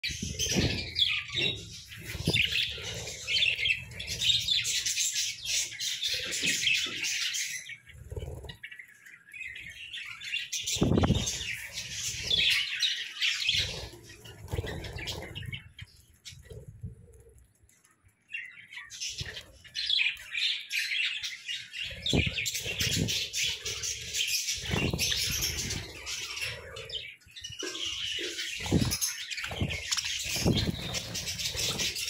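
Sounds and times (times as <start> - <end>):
wing flutters: 0.0 - 8.8, 10.4 - 17.5, 21.8 - 27.0, 27.7 - 32.0
budgerigars chattering: 0.1 - 8.7, 19.1 - 32.0.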